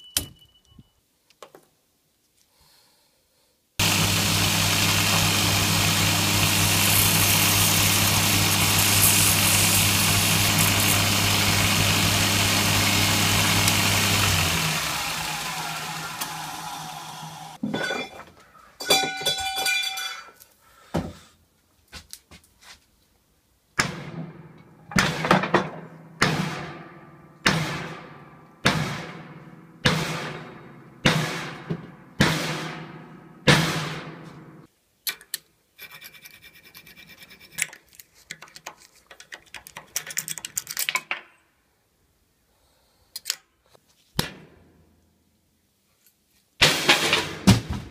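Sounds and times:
belt grinder winding down: 0:03.8 - 0:17.6.

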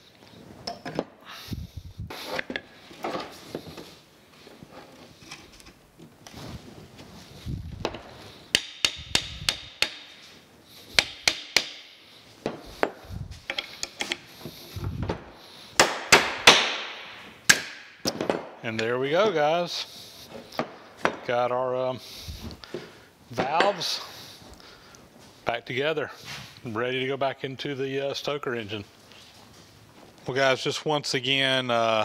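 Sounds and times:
small hammer tapping metal: 0:08.5 - 0:10.1, 0:11.0 - 0:11.8.

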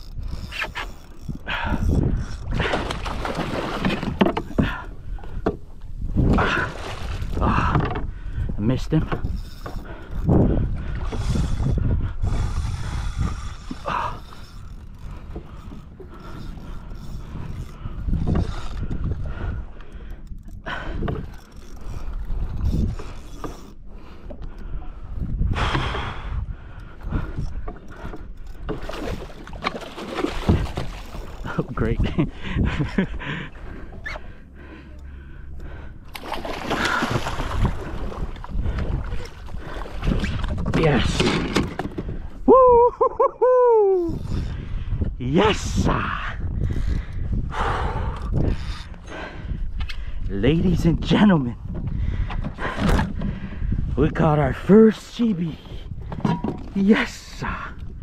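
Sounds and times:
wind buffeting microphone: 0:00.0 - 0:34.8, 0:35.5 - 0:58.0
water sloshing around kayak: 0:00.0 - 0:42.5, 0:50.8 - 0:58.0
water splashing: 0:02.5 - 0:04.4, 0:28.8 - 0:31.8, 0:36.1 - 0:41.6.

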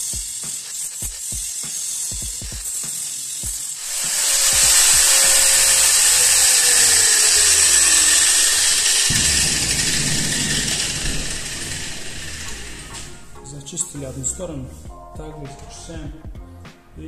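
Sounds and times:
background music with a beat: 0:00.0 - 0:03.8, 0:12.8 - 0:17.0
angle grinder hiss: 0:00.0 - 0:14.8.

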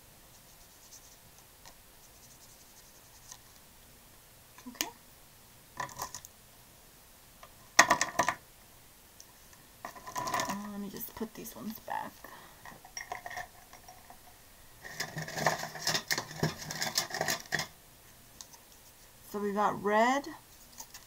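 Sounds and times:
plastic pens clicking and clattering: 0:14.9 - 0:17.7.

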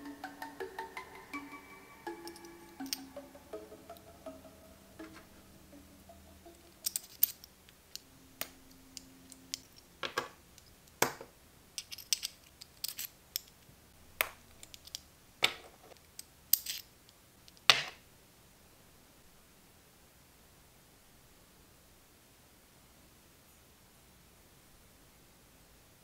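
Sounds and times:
small metal parts clicking: 0:06.6 - 0:11.0, 0:11.8 - 0:13.7, 0:14.5 - 0:15.1, 0:15.9 - 0:17.7.

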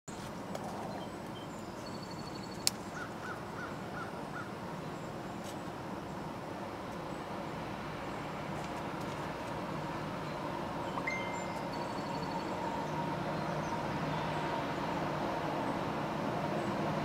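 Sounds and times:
train rumbling in tunnel: 0:06.5 - 0:17.0
bird calling: 0:10.9 - 0:14.5.

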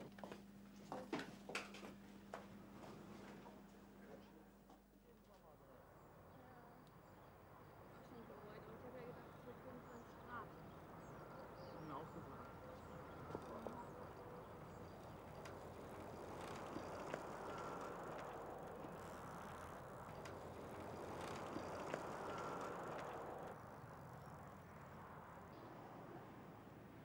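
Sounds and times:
bicycle tyres hissing: 0:14.6 - 0:23.6
bicycle clicks and rattles: 0:15.0 - 0:23.5.

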